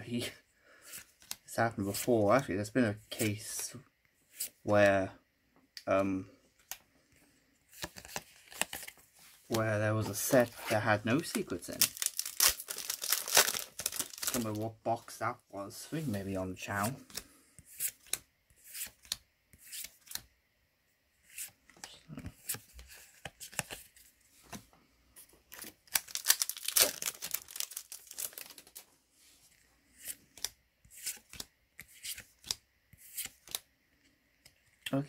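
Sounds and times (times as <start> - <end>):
trading cards clicking and rustling: 11.1 - 14.6
foil pack tearing open: 11.8 - 14.5, 25.9 - 28.7.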